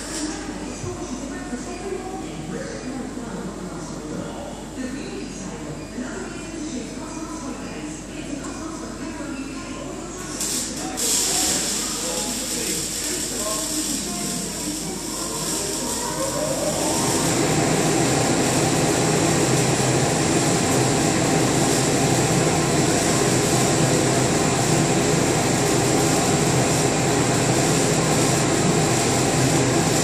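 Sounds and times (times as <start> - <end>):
conveyor belt running: 10.2 - 30.0.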